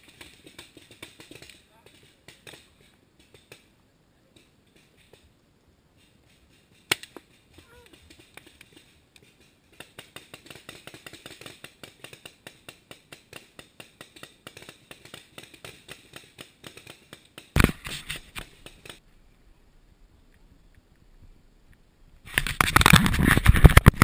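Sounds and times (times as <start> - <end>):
scraping and rustling: 14.7 - 19.0, 22.3 - 24.0.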